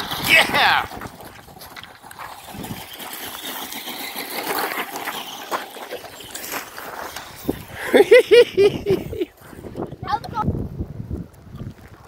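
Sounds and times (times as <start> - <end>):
crunching on gravel: 0.0 - 7.9.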